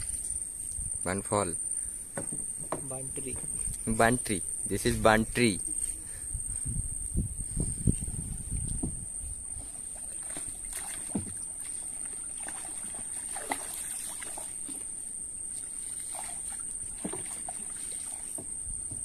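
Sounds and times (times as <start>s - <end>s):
high-pitched insect buzz: 0.0s - 18.8s
sharp knocks on boat: 2.1s - 3.5s, 9.6s - 11.4s, 17.0s - 17.6s, 18.2s - 19.0s
water sloshing around pole and hull: 7.4s - 19.0s.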